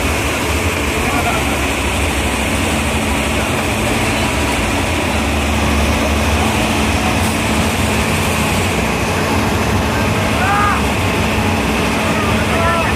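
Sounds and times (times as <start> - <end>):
helicopter rotor and turbine: 0.0 - 12.9.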